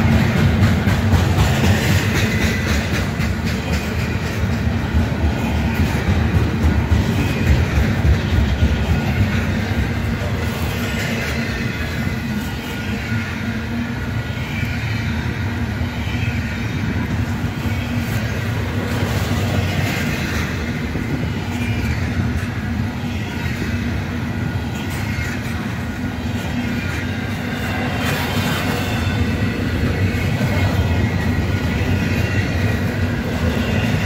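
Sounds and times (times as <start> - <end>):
train wheels rumbling on rails: 0.0 - 34.0.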